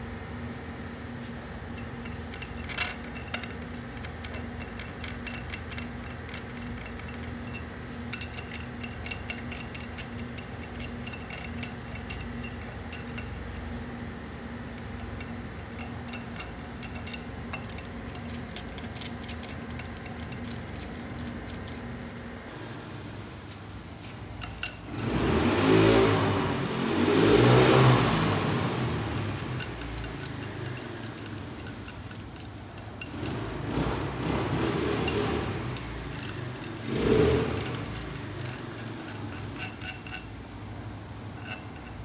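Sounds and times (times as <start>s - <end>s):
fan humming: 0.0s - 42.0s
metal tools clinking: 1.8s - 13.7s, 14.8s - 21.8s, 29.4s - 34.2s, 34.8s - 40.4s, 41.3s - 42.0s.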